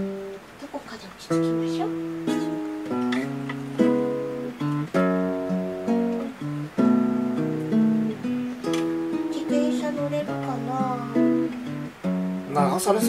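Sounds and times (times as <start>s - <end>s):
acoustic guitar strumming and plucking: 0.0s - 13.0s.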